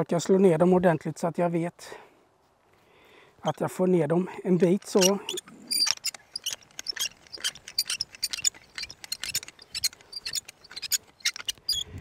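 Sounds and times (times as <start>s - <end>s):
hand crank clicking and creaking: 4.5s - 12.0s.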